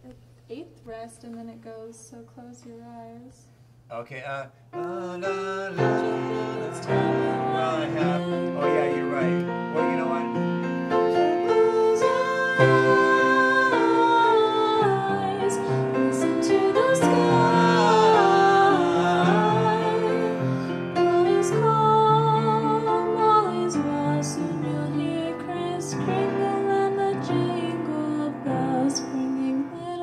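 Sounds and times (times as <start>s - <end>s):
upright piano: 4.8s - 30.0s
woman singing slow song: 5.8s - 8.7s, 11.5s - 30.0s.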